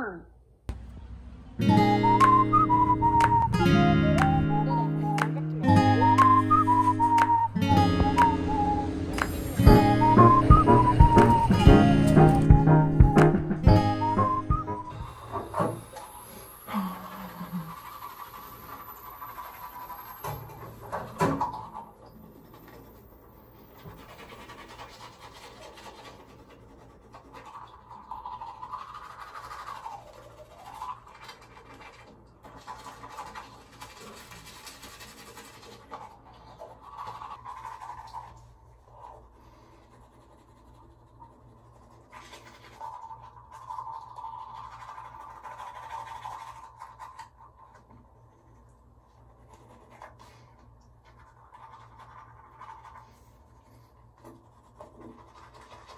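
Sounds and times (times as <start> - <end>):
faint music: 0.7 - 15.7
toothbrush scratching teeth: 16.2 - 21.8, 23.5 - 55.9.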